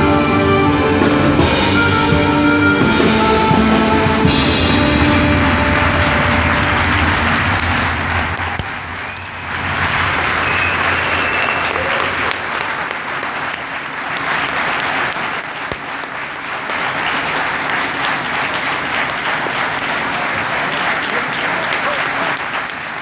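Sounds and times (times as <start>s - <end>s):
music with drums: 0.0s - 8.7s
audience applause: 0.0s - 23.0s.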